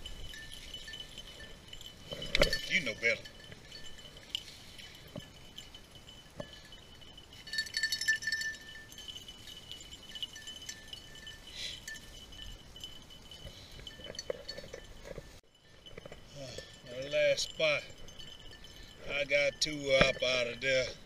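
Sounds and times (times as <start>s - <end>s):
dog collar bells jingling: 0.0s - 21.0s.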